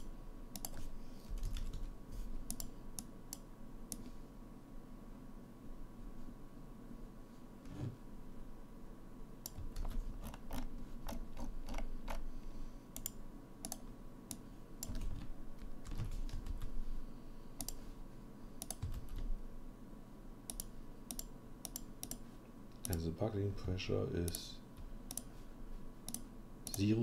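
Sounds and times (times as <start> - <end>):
keyboard and mouse clicks: 0.0 - 4.1, 9.4 - 12.2, 13.0 - 16.7, 17.6 - 17.8, 18.6 - 19.3, 20.5 - 22.2, 25.1 - 25.3
faint steady hum: 0.0 - 27.0.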